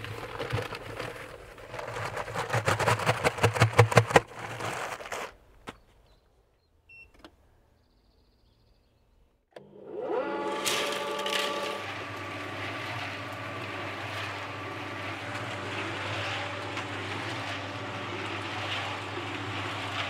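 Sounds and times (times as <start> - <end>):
cement mixer motor hum: 0.0 - 4.3, 9.5 - 20.0
cement powder scraping hiss: 10.7 - 20.0.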